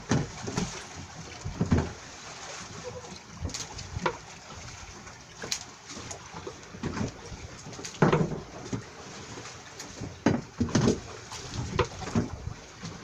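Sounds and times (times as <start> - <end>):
sea wash: 0.0 - 13.0.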